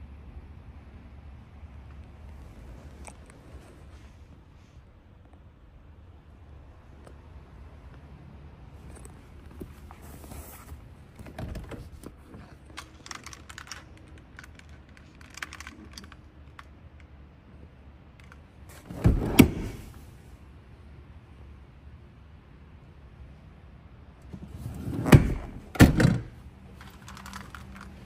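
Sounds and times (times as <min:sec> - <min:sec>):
clicks and rustles in car cabin: 0:08.8 - 0:16.7.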